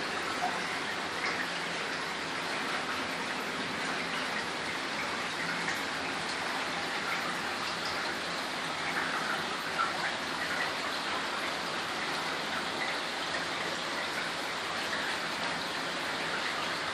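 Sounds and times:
creek trickling over rocks: 0:00.0 - 0:16.9.

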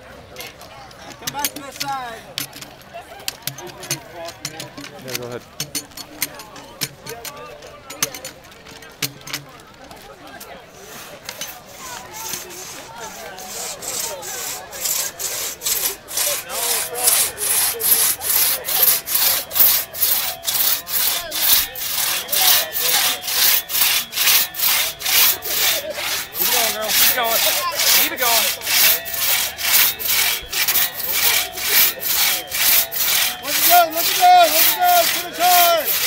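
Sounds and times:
crosscut saw rasping through timber: 0:03.5 - 0:07.3, 0:10.7 - 0:36.0.

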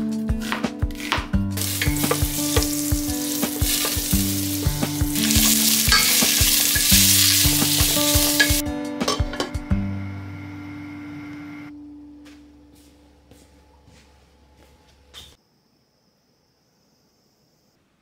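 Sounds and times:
soft background music: 0:00.0 - 0:15.4
food sizzling in a pan: 0:01.6 - 0:08.6.

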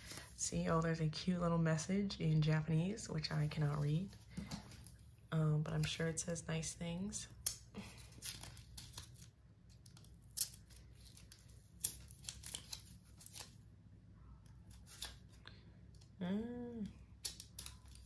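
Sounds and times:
person humming: 0:16.2 - 0:17.0.

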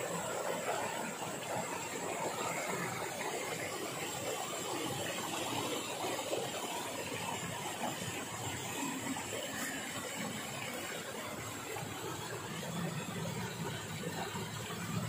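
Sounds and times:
river water flowing: 0:00.0 - 0:15.0.

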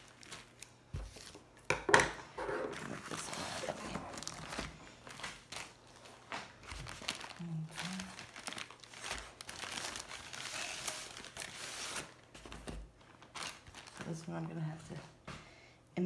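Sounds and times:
plastic packaging crinkling: 0:00.0 - 0:01.7, 0:02.7 - 0:14.8.

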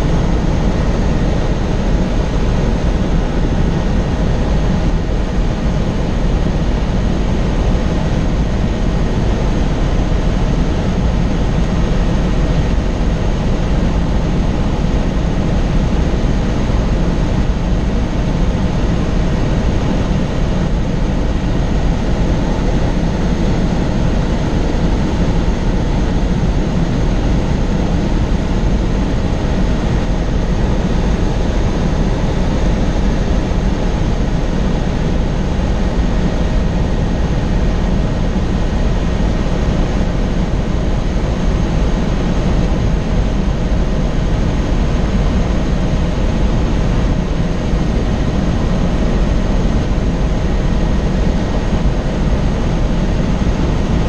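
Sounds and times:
helicopter rotor and engine drone: 0:00.0 - 0:54.0.

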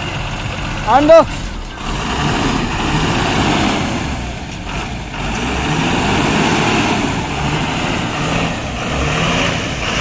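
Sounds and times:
diesel engine rumbling: 0:00.0 - 0:10.0.

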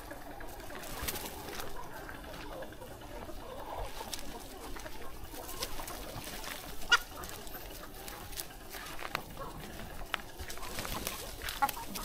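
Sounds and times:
chickens clucking: 0:00.0 - 0:12.0
chicken sharp call: 0:01.4 - 0:08.1.

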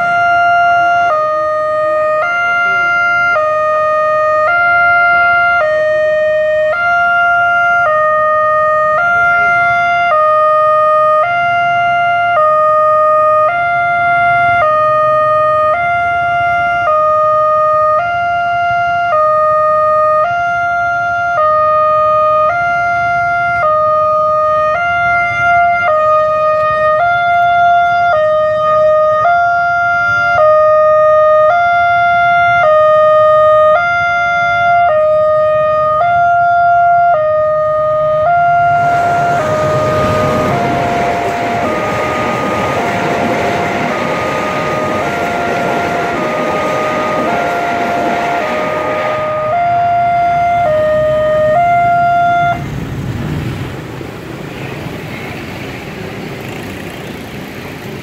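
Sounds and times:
level crossing two-tone alarm: 0:00.0 - 0:52.6
train rumble: 0:37.3 - 0:58.0.

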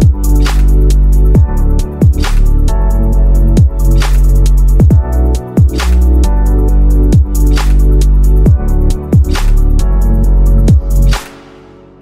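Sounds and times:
deep kick drums: 0:00.0 - 0:00.4, 0:01.3 - 0:02.9, 0:03.6 - 0:03.8, 0:04.7 - 0:06.4, 0:07.1 - 0:07.5, 0:08.4 - 0:09.4, 0:10.7 - 0:11.0
background music with heavy bass: 0:00.0 - 0:12.0
snare hit: 0:02.2 - 0:02.6, 0:04.0 - 0:04.4, 0:05.8 - 0:06.1, 0:07.5 - 0:07.9, 0:09.3 - 0:09.7, 0:11.1 - 0:11.9.

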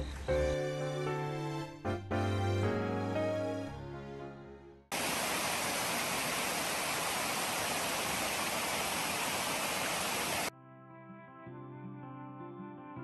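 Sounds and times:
stream rushing: 0:04.9 - 0:10.5.

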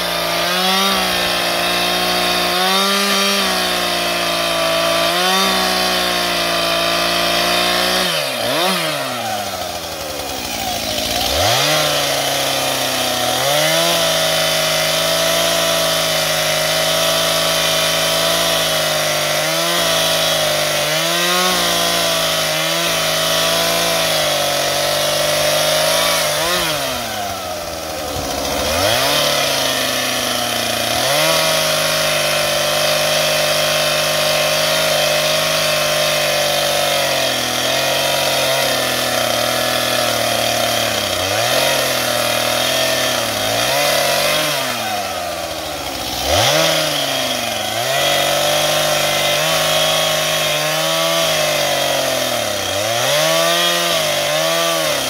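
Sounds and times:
chainsaw cutting wood: 0:00.0 - 0:55.0.

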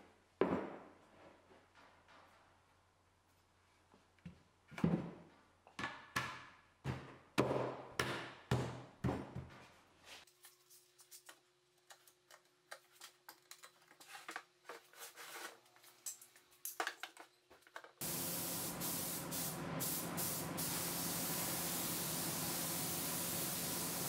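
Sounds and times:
spray booth air rushing: 0:18.0 - 0:24.0
spray gun hissing: 0:18.0 - 0:24.0.

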